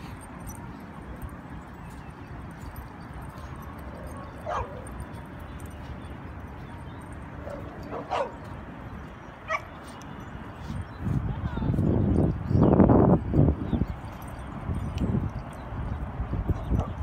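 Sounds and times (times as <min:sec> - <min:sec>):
dogs yipping: 0:00.0 - 0:08.6, 0:09.4 - 0:10.0.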